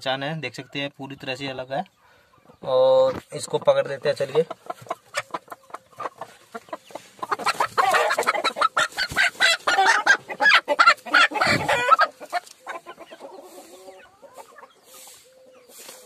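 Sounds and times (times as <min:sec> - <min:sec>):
hen squawking in alarm: 0:07.7 - 0:12.4.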